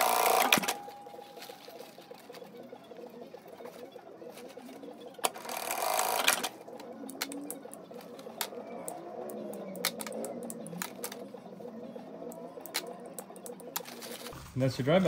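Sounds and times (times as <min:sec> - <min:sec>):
sewing machine running: 0:00.0 - 0:00.8, 0:05.3 - 0:06.5.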